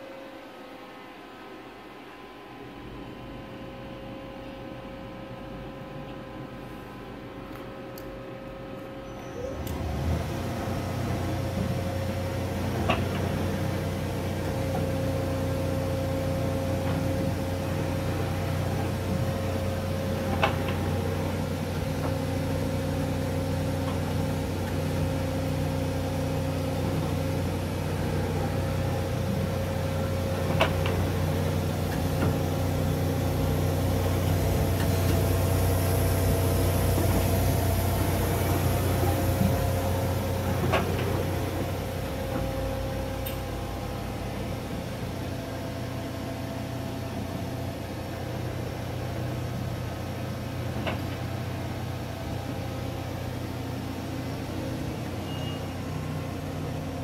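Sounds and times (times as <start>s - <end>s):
lathe machine hum: 9.6s - 57.0s.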